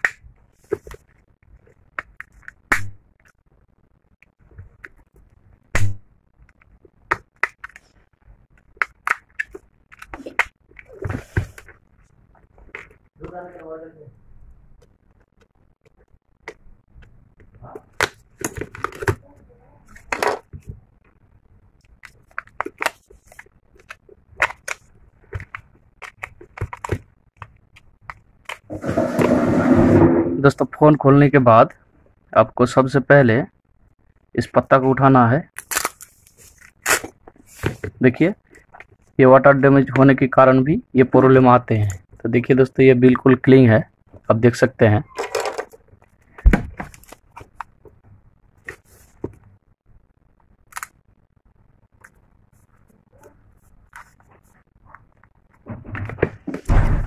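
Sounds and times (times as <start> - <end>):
dull thump: 55.7 - 57.0.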